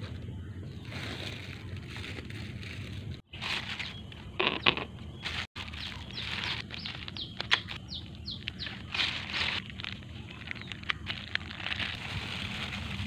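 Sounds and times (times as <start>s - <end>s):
plastic bags rustling: 0.0s - 4.5s, 5.2s - 13.0s
bird chirping: 3.6s - 11.2s.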